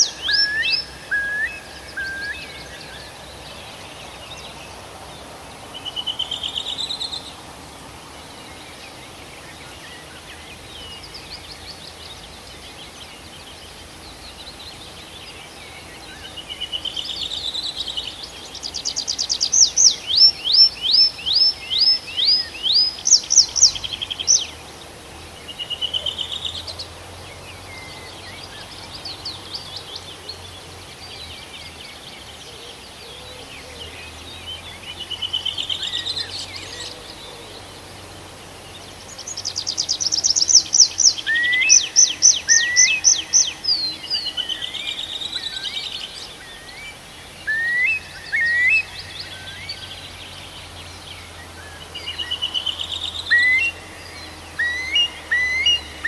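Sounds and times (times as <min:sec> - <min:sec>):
songbird whistling song: 0:00.0 - 0:03.2, 0:39.1 - 0:50.6, 0:51.3 - 0:56.0.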